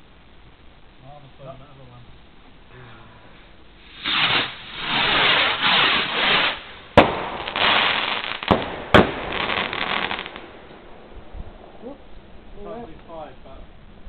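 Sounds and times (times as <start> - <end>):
fireworks hissing: 2.2 - 13.6
fireworks bangs: 3.8 - 12.5.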